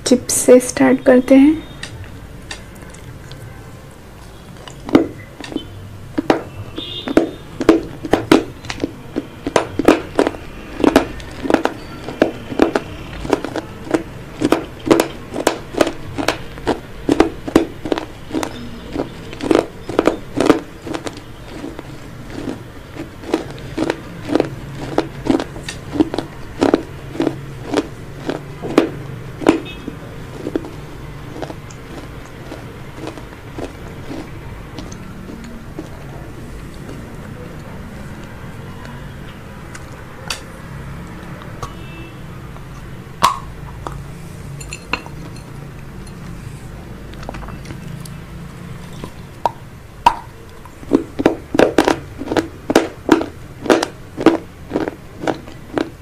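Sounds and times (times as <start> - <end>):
chips crunching while chewed: 4.6 - 38.4, 48.8 - 56.0.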